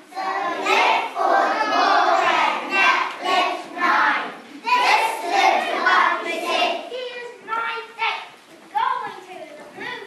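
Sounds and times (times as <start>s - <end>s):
children chanting a rap: 0.0s - 7.8s.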